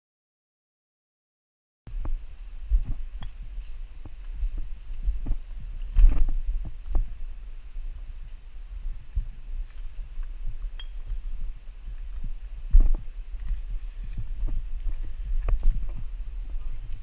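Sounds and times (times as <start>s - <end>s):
camera handling rumble: 4.0s - 7.1s, 12.1s - 17.0s
footsteps on rock: 11.9s - 17.0s.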